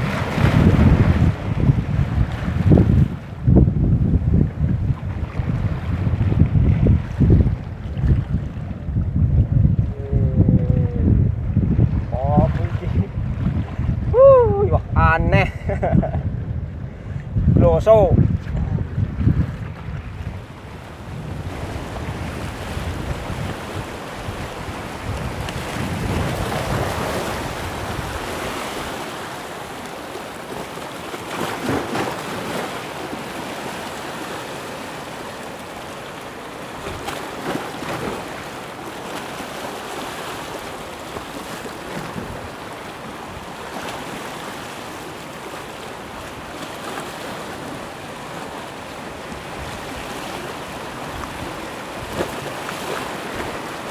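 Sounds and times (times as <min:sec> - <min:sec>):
sea waves splashing: 0:00.0 - 0:09.0, 0:10.0 - 0:15.8, 0:17.8 - 0:53.9
wind buffeting microphone: 0:00.0 - 0:30.6.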